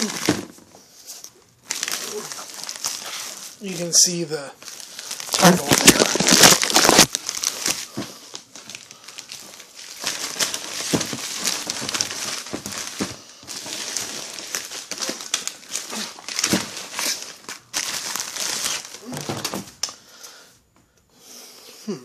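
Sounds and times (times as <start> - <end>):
plastic packaging crinkling: 0.0 - 20.0.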